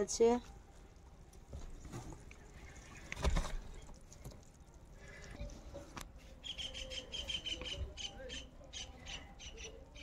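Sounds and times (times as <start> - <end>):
faint outdoor ambience: 0.0 - 10.0
bird high chirps: 6.4 - 10.0.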